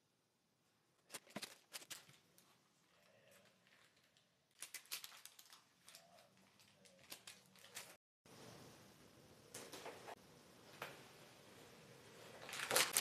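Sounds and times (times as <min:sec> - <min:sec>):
crackles: 0:01.0 - 0:08.8, 0:12.2 - 0:13.0
baking paper crinkling: 0:01.1 - 0:08.0, 0:12.3 - 0:13.0.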